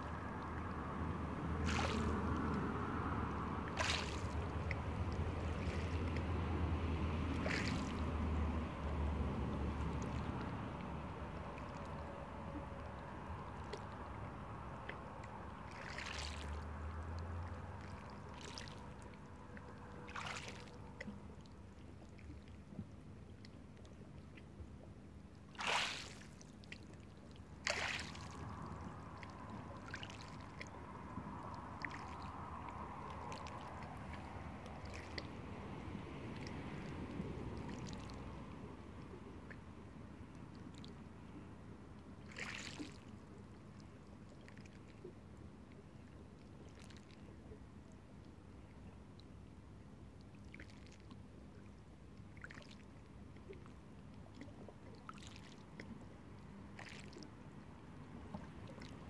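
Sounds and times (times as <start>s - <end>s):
water splashes: 0.0s - 59.0s
water sloshing against rocks: 3.7s - 6.3s, 14.8s - 23.0s, 25.4s - 35.4s.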